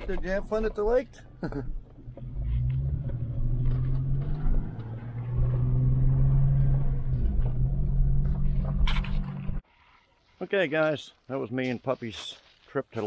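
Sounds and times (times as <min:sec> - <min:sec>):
vehicle engine and road hum: 0:00.0 - 0:09.7.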